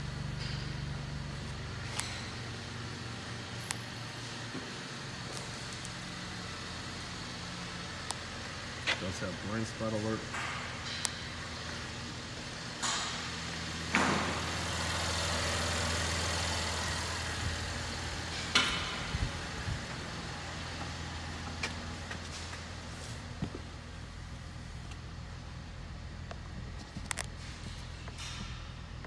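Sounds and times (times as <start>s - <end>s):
car engine idling: 6.4s - 29.0s.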